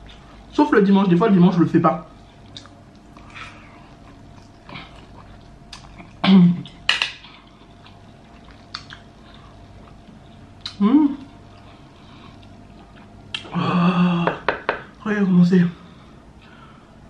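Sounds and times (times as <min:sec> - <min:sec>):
chewing and mouth noises: 0:02.1 - 0:13.5.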